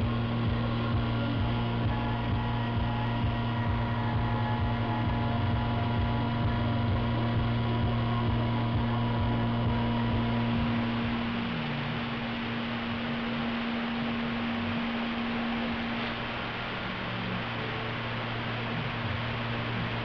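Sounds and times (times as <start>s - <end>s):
milling machine spindle hum: 0.0s - 20.0s.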